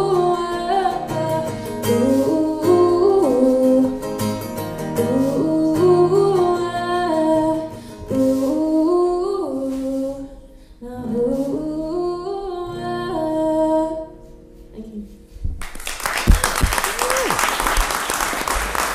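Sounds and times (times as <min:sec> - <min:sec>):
strummed acoustic guitar: 0:00.0 - 0:10.2.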